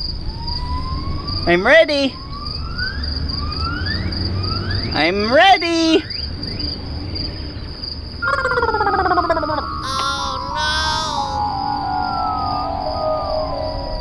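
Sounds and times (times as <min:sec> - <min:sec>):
insects buzzing: 0:09.8 - 0:11.4
rising calls: 0:09.8 - 0:11.4.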